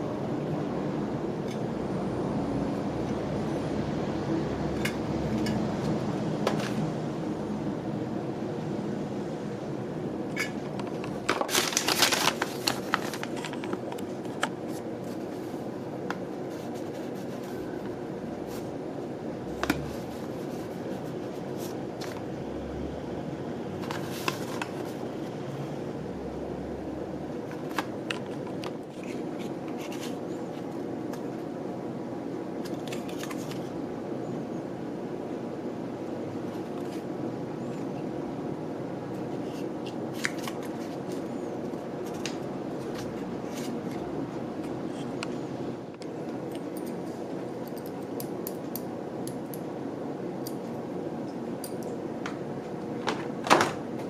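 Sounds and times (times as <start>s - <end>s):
steady background hum: 0.0s - 54.0s
paper and cardboard rustling: 11.0s - 15.7s, 16.4s - 17.8s, 23.8s - 25.0s.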